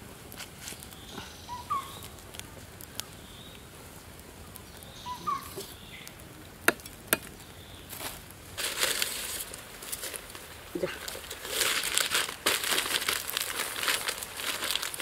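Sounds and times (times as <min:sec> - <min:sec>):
wood fire crackling and popping: 0:00.0 - 0:15.0
bird chirping: 0:00.9 - 0:02.2, 0:04.6 - 0:06.2.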